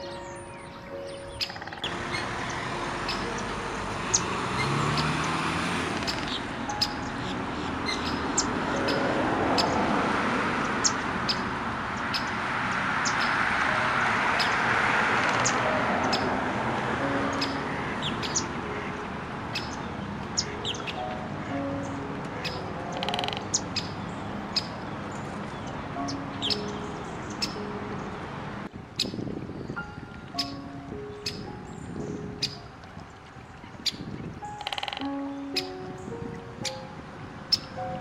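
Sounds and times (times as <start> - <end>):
small birds chirping: 0.0 - 9.9, 10.6 - 13.6, 17.2 - 28.2, 29.0 - 38.0.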